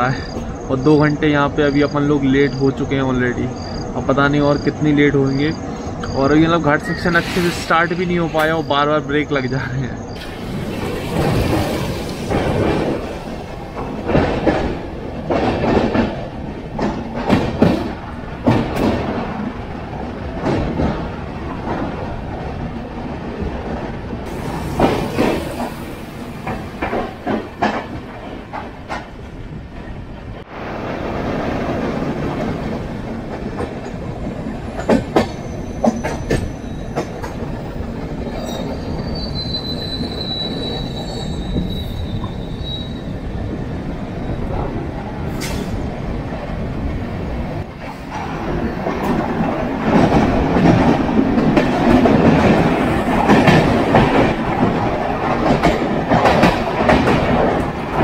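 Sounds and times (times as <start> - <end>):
train running on rails: 0.0 - 58.0
high wheel squeal: 5.5 - 12.3, 35.2 - 37.1, 38.2 - 43.2
wheels clicking over track: 47.7 - 58.0.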